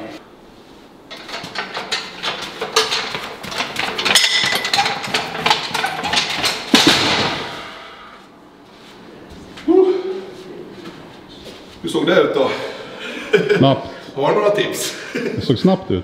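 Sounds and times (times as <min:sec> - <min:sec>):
metal frame and plates rattling: 0:01.0 - 0:08.3
loud metal clank: 0:01.1 - 0:08.3.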